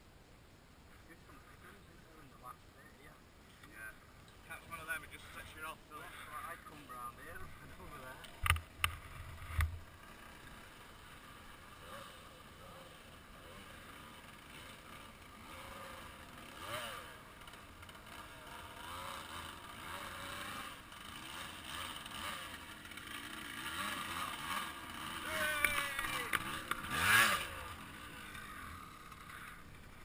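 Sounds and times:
dirt bike engine revving: 6.5 - 30.0.

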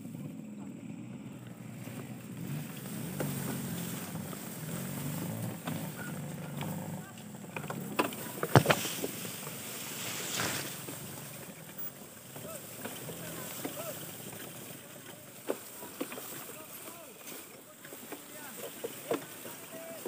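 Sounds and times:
dirt bike engine running: 0.0 - 20.0
tall grass swishing: 1.8 - 7.0, 8.1 - 11.6.

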